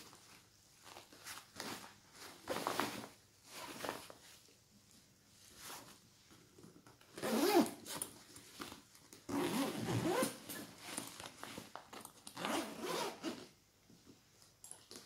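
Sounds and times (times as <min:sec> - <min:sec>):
backpack zipper being pulled: 0:07.2 - 0:07.8, 0:09.3 - 0:10.6, 0:12.4 - 0:13.5.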